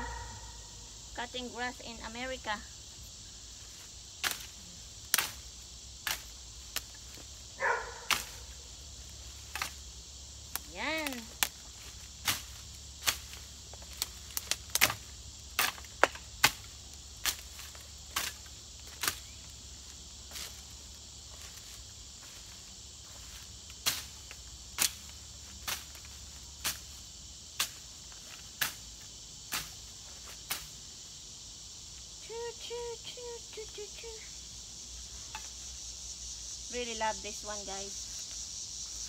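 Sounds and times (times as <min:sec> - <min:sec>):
blade chopping grass stems: 0:04.2 - 0:04.5, 0:05.1 - 0:05.4, 0:06.0 - 0:06.9, 0:08.0 - 0:08.4, 0:09.4 - 0:09.8, 0:12.2 - 0:19.3, 0:23.8 - 0:24.2, 0:24.8 - 0:26.9, 0:28.6 - 0:28.8.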